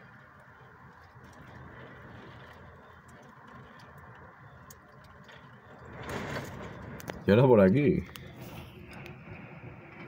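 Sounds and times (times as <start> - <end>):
rain ticking on glass: 0.4 - 6.0.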